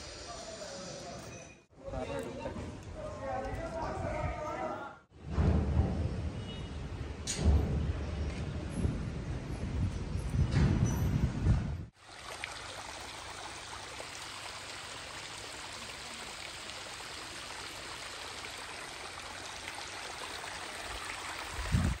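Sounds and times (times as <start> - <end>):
small waterfall splashing: 11.9 - 22.0.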